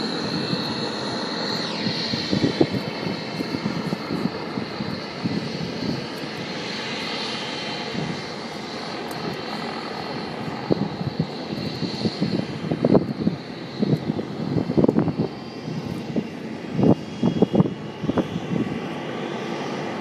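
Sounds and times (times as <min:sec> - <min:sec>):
helicopter turbine whine and roar: 0:00.0 - 0:20.0.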